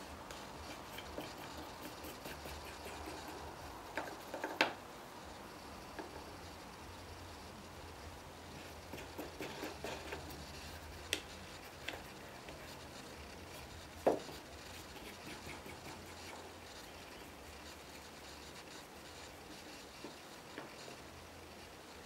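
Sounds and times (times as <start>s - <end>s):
wooden knock: 14.0s - 14.3s.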